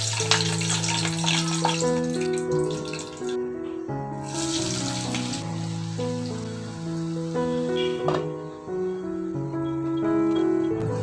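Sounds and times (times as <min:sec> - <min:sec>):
spices sizzling in hot oil: 0:00.0 - 0:03.3, 0:04.2 - 0:08.0
instrumental music with held notes: 0:00.0 - 0:11.0.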